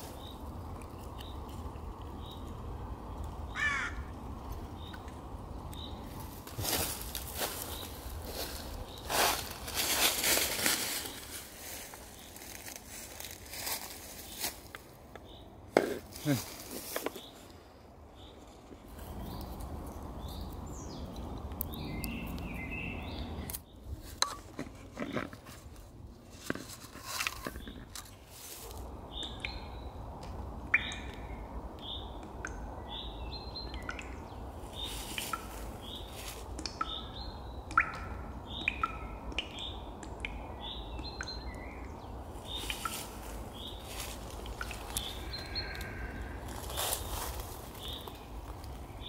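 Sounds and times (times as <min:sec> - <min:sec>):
small birds chirping: 0:00.0 - 0:24.0, 0:27.4 - 0:49.0.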